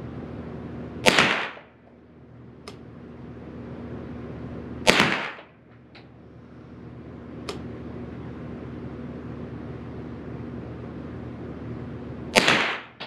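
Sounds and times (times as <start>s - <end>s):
rifle shots echoing indoors: 1.0s - 1.8s, 4.8s - 5.5s, 12.3s - 13.0s.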